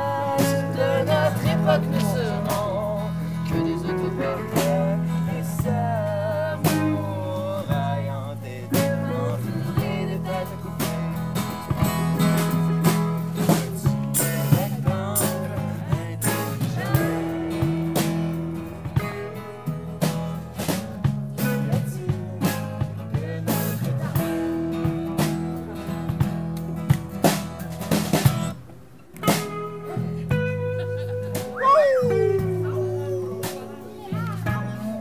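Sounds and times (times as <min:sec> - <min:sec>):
person singing: 0:00.0 - 0:20.7, 0:29.9 - 0:35.0
electric bass: 0:00.0 - 0:35.0
strummed acoustic guitar: 0:00.0 - 0:35.0.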